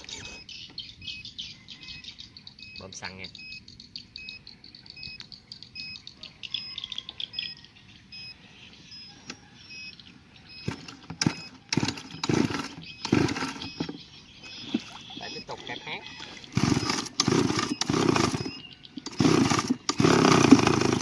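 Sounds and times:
rasping starter cord pulls: 10.6 - 14.0, 16.5 - 21.0.

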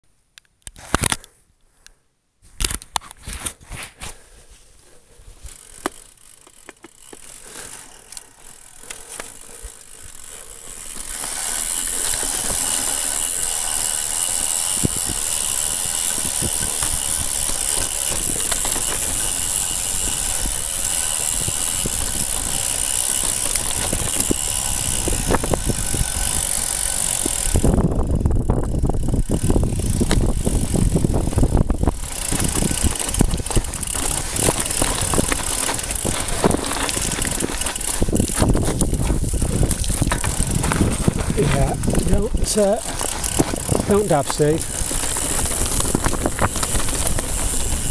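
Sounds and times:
bike tyres hissing on grass: 3.6 - 27.7, 29.3 - 47.9
tyres rumbling over rocky scree: 29.3 - 47.9.

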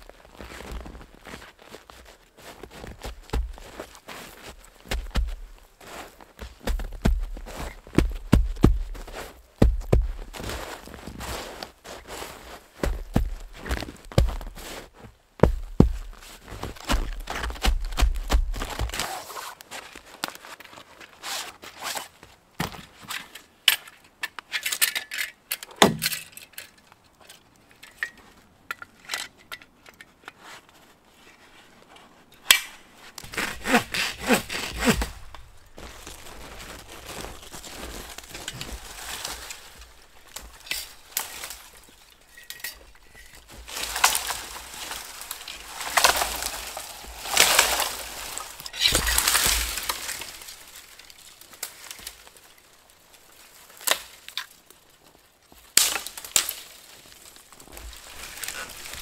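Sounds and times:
tree falling into snow: 0.0 - 20.6, 33.2 - 52.7, 55.6 - 59.0
gear handled in snow: 0.0 - 24.7, 29.9 - 59.0
hand saw cutting wood: 33.2 - 35.1.

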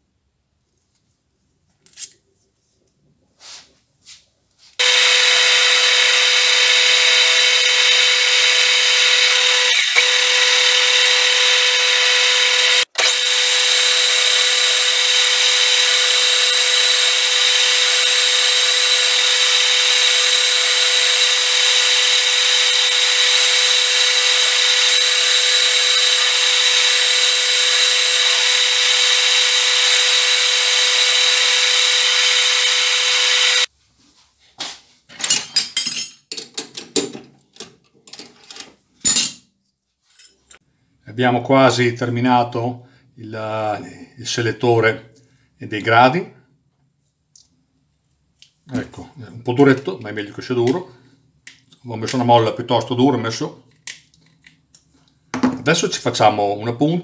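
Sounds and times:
metal lathe whining: 4.8 - 33.7.

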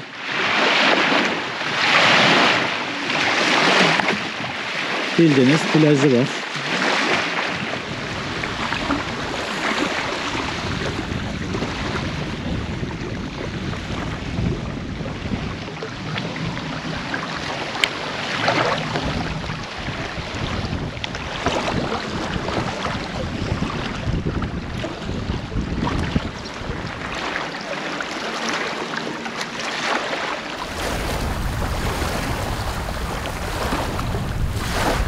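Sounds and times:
waves lapping on sandy shore: 0.0 - 35.0
wind buffeting microphone: 6.8 - 27.5, 30.6 - 35.0.

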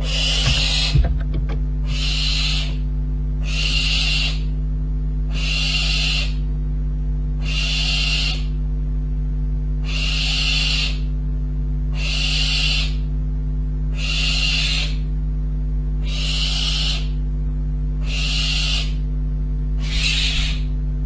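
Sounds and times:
young owl hissing call: 0.0 - 1.0, 1.8 - 2.8, 3.4 - 4.5, 5.3 - 6.5, 7.4 - 8.6, 9.8 - 11.1, 11.9 - 13.1, 13.9 - 15.1, 16.0 - 17.2, 18.0 - 19.0, 19.8 - 20.8
low electrical hum: 0.0 - 21.0.

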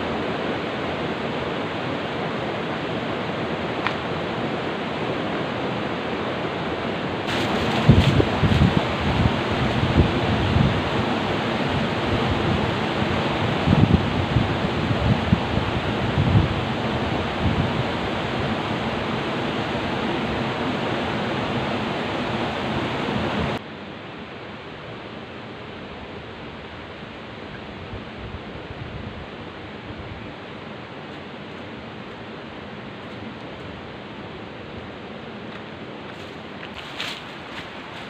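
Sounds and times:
rocky river rushing: 0.0 - 23.6
wind buffeting microphone: 0.0 - 23.6.

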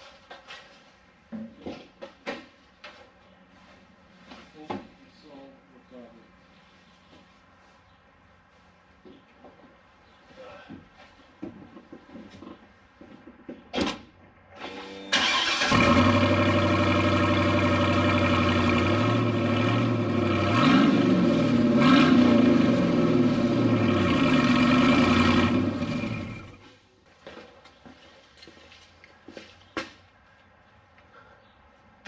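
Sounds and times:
truck engine starting: 14.6 - 26.6
loud engine revving: 15.2 - 26.6.

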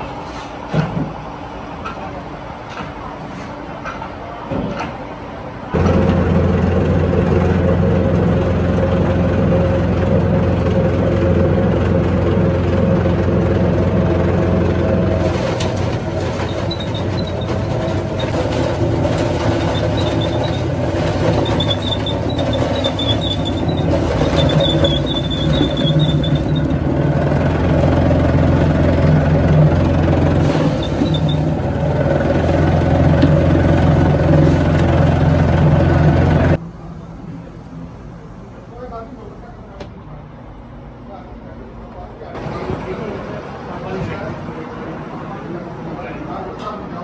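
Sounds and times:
electric grinding mill humming: 5.8 - 36.6
faint high squeak: 16.3 - 18.3, 19.6 - 26.7.

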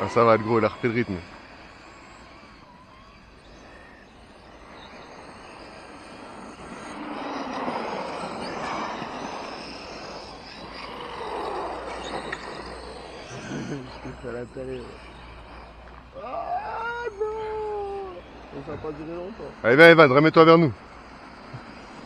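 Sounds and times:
tyres on dirt: 0.0 - 17.2
rc truck motor whine: 0.0 - 22.0.

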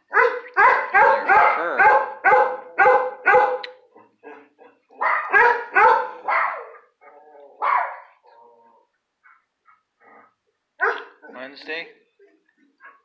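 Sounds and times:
dog barking: 0.1 - 3.7, 4.9 - 6.9, 7.6 - 8.2, 10.8 - 11.3, 12.8 - 13.0.

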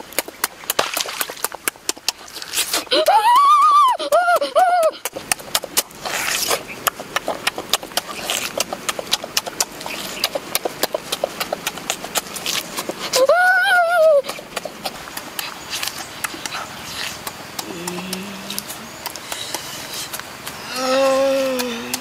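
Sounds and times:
person chewing with lip smacks: 0.0 - 3.3, 4.3 - 22.0.

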